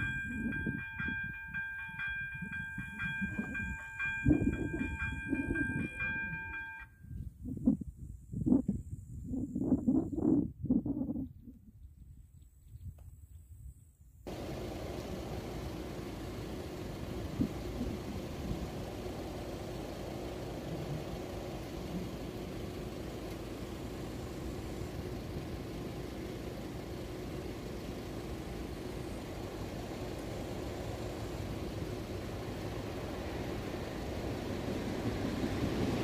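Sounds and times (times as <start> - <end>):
vehicle engine idling: 0.0 - 6.8, 14.3 - 36.0.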